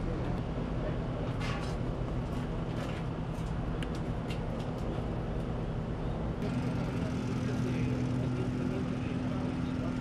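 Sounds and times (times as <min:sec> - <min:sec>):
steady engine hum: 0:00.0 - 0:10.0
low engine rumble: 0:03.7 - 0:10.0.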